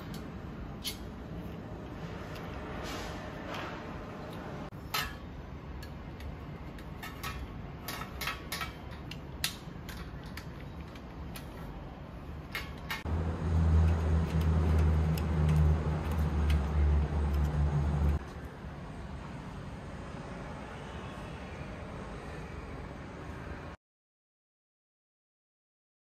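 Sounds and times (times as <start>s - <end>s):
metal parts clicking and knocking: 5.8s - 11.7s, 12.4s - 13.1s.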